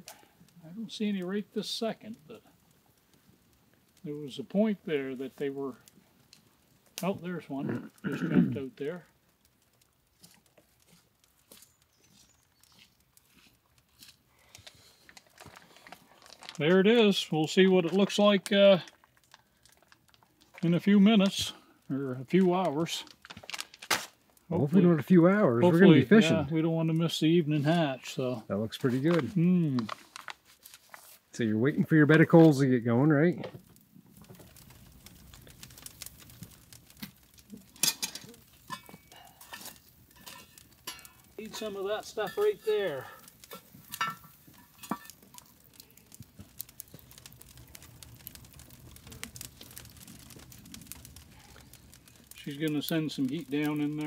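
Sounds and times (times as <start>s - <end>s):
faint ticks and rustles: 0.0s - 25.2s, 28.4s - 54.0s
campfire crackling: 0.0s - 54.0s
metal tool scraping coals: 0.0s - 54.0s
metal clinking: 37.7s - 45.5s.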